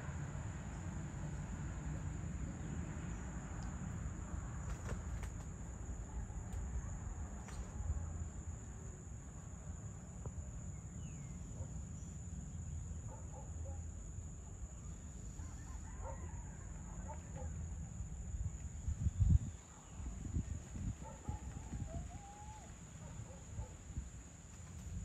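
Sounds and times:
crickets chirping: 0:00.0 - 0:25.0
faint bird calls: 0:21.0 - 0:23.8.

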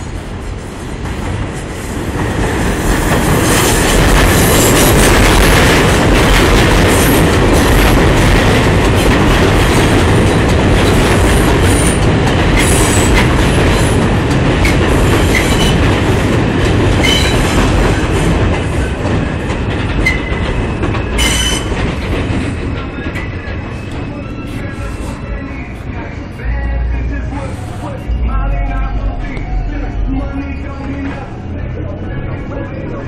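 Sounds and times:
subway train wheels rumbling: 0:00.0 - 0:33.0
high-pitched wheel squeals: 0:21.1 - 0:21.7.

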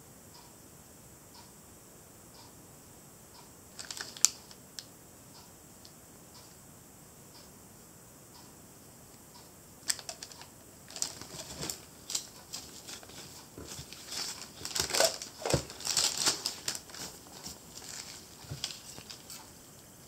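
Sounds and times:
glove and paper crinkling: 0:03.8 - 0:04.4, 0:09.9 - 0:19.5.

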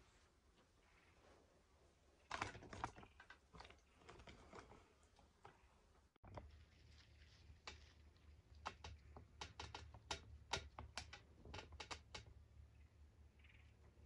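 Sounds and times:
sharp irregular clicks: 0:08.5 - 0:12.4.

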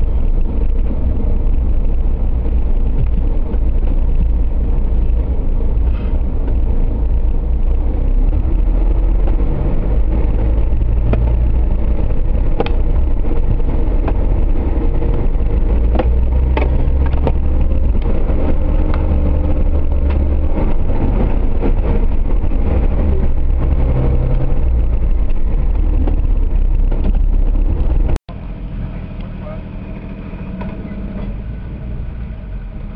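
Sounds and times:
off-road engine running: 0:00.0 - 0:32.9
sharp clicks and knocks: 0:02.8 - 0:04.4, 0:09.2 - 0:23.8.

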